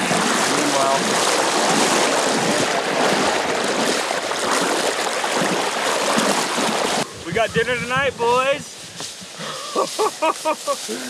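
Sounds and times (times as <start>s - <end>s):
water splashing from wading: 0.0s - 7.2s.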